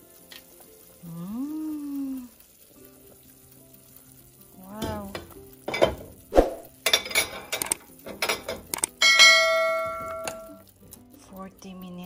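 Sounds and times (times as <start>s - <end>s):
metal utensils clinking on pot: 4.8s - 11.8s.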